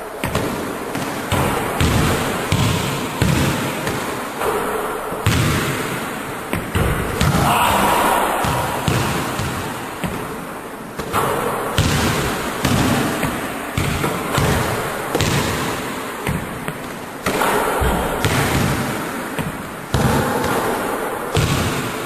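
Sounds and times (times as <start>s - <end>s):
basketball bouncing on wooden floor: 0.2s - 7.5s, 8.4s - 10.4s, 11.0s - 22.0s
basketball hitting rim: 0.2s - 22.0s.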